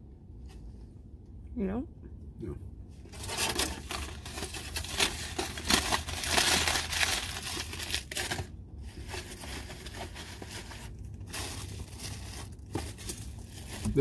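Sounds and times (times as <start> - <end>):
foil wrapper crinkling: 3.1 - 14.0.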